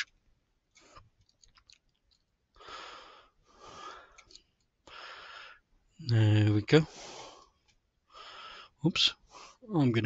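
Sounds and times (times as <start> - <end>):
faint breathing: 2.5 - 5.7, 6.8 - 9.7.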